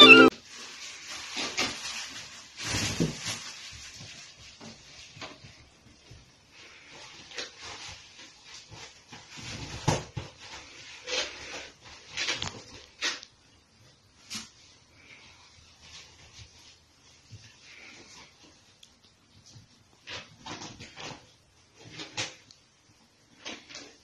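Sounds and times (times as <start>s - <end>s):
ferret playing in fabric tunnel: 0.3s - 13.0s, 13.8s - 19.6s.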